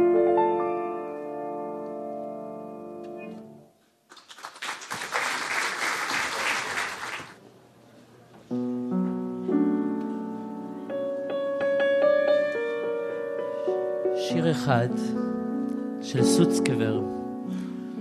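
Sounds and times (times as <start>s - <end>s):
piano notes over held chords: 0.0s - 3.7s, 8.5s - 18.0s
audience applauding: 4.1s - 7.4s.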